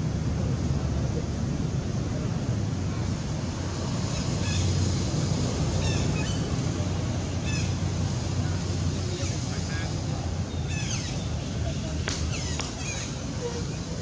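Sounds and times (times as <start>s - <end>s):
monkey squeaking calls: 5.8s - 6.5s, 7.4s - 7.8s, 10.7s - 11.3s, 12.3s - 14.0s.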